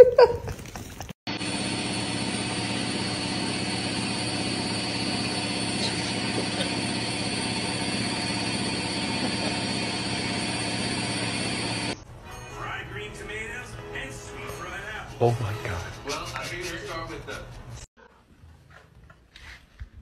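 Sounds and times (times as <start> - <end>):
washing machine motor hum: 1.3 - 12.0.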